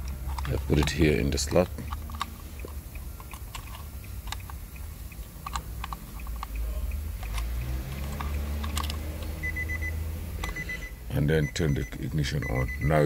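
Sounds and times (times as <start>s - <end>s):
steady low hum: 0.0s - 13.0s
high electronic beep: 9.4s - 13.0s.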